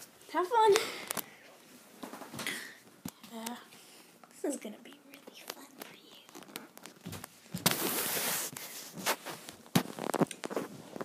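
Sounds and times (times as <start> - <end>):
rustling scrape: 7.6 - 11.0.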